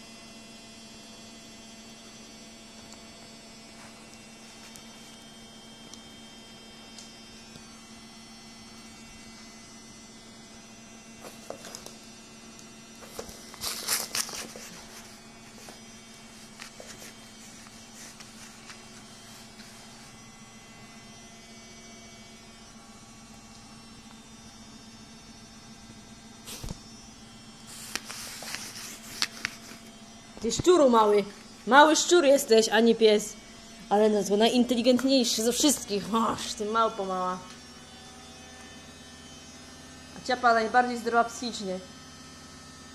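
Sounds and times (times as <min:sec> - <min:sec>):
electrical mains hum: 0:00.0 - 0:42.9
scuffling and rustling: 0:13.0 - 0:20.2, 0:27.7 - 0:29.9.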